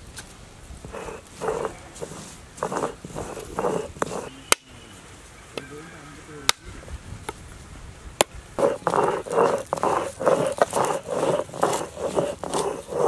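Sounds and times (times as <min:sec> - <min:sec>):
rasping scraping strokes: 0:00.8 - 0:04.4, 0:08.6 - 0:13.0.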